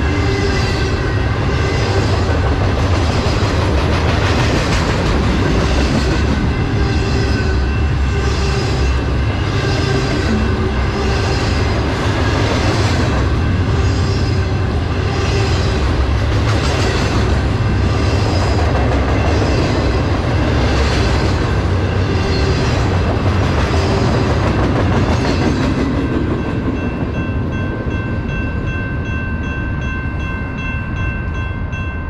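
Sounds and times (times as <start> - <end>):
freight train wheels rumbling on rail: 0.0 - 32.0
crossing bell ringing: 5.3 - 12.3, 13.0 - 16.2, 17.3 - 23.0, 23.9 - 32.0.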